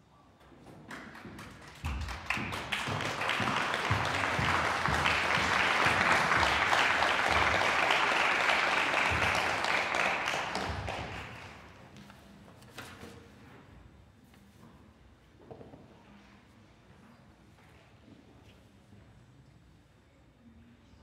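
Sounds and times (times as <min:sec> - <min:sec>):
audience applauding: 0:00.9 - 0:11.8.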